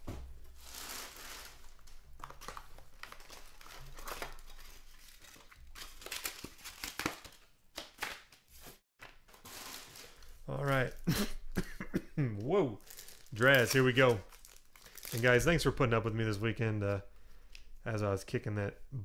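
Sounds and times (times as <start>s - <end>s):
rustling cardboard and wrappers: 0.3s - 11.1s, 12.4s - 15.8s.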